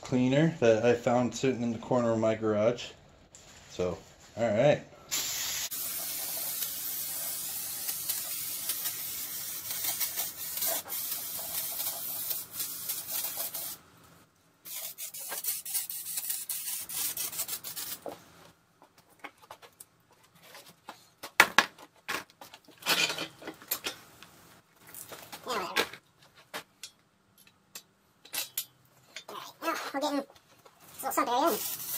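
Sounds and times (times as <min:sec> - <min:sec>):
aerosol can spraying: 0:05.1 - 0:13.8, 0:31.5 - 0:31.9.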